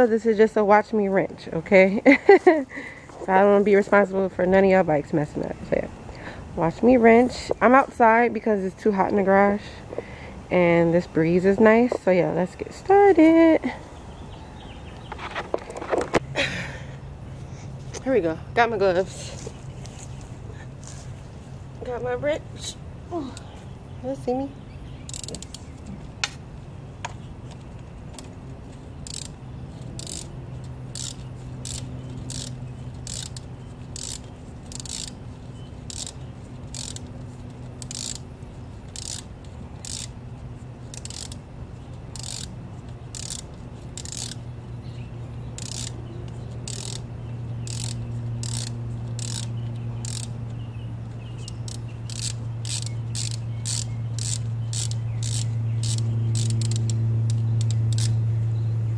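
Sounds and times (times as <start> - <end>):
steady low hum: 0.0 - 58.9
ratchet wrench clicking: 25.0 - 25.6, 28.1 - 40.2, 40.8 - 41.4, 42.0 - 44.5, 45.6 - 50.6, 51.2 - 58.2.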